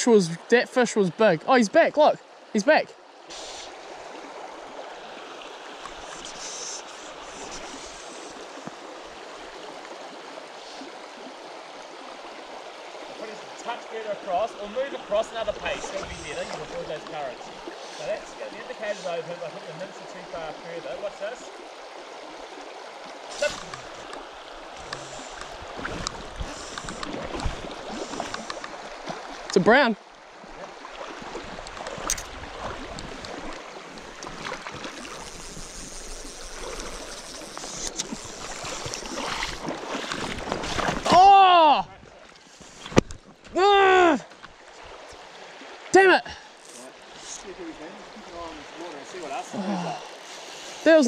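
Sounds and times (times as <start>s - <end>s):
stream running over stones: 0.0s - 51.0s
sharp splash: 34.2s - 41.4s.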